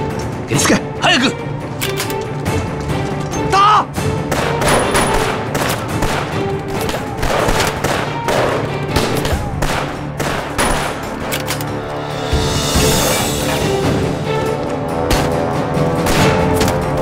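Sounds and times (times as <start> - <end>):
dramatic background music: 0.0 - 17.0
rifle and pistol shots: 4.2 - 11.7.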